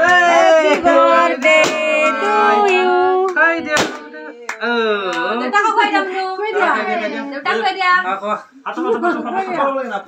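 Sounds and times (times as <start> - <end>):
group of voices singing: 0.0 - 4.8.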